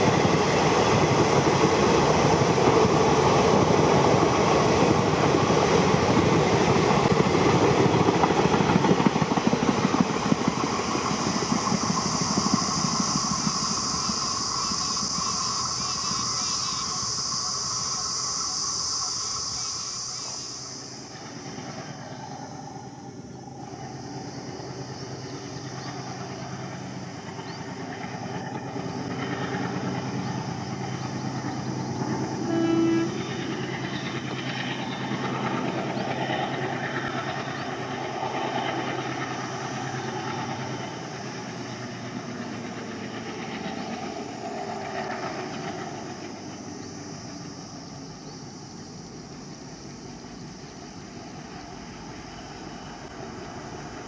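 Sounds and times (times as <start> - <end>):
diesel locomotive engine rumble: 0.0 - 54.0
high steady buzz: 10.5 - 34.4
train horn blast: 32.4 - 33.5.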